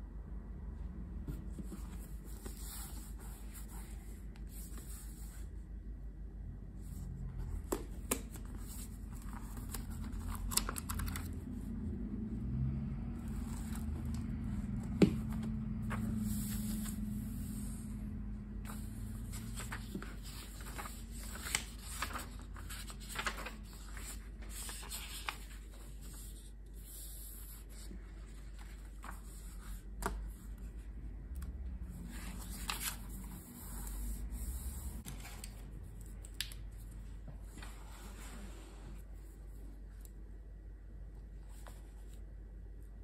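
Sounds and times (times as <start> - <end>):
low steady hum: 0.0 - 43.0
paper rustling: 7.5 - 11.4, 18.6 - 26.5, 32.0 - 36.5.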